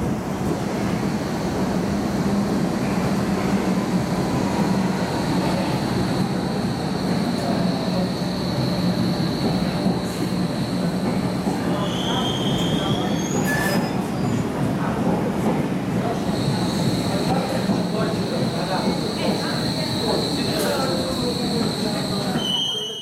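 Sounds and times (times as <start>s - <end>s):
train rolling rumble: 0.0s - 22.7s
high train squeal: 2.8s - 14.6s, 16.1s - 23.0s.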